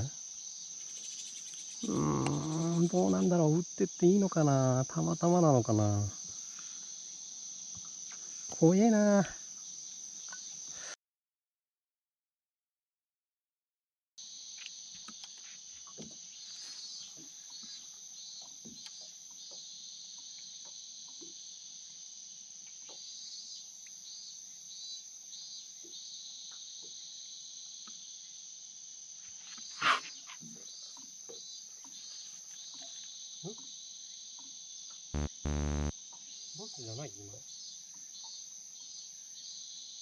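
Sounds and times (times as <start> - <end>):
high-pitched insect chorus: 0.0 - 11.0, 36.3 - 40.0.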